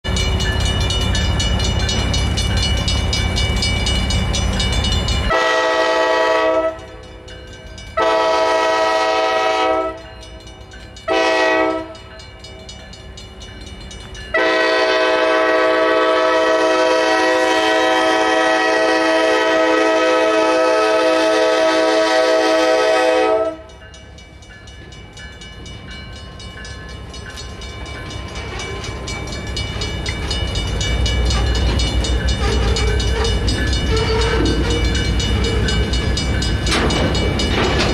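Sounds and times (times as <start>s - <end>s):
crossing bell ringing: 0.0s - 37.9s
locomotive engine and wheels: 0.0s - 37.9s
locomotive air horn blasts: 5.3s - 6.9s, 8.0s - 10.1s, 11.1s - 12.0s, 14.4s - 23.7s, 33.9s - 34.7s.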